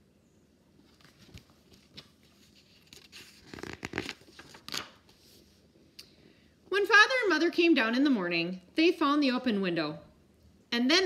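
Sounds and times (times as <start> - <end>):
book pages turning: 0.8 - 5.6.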